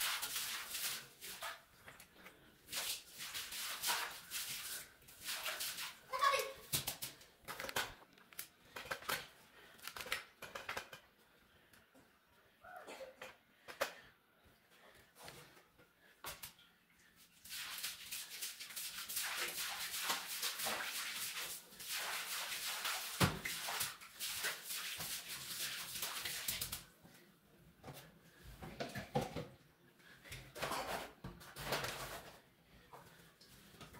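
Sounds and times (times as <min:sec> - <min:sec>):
broom sweeping tiled floor: 0:00.0 - 0:07.3, 0:15.2 - 0:27.0, 0:30.3 - 0:33.9.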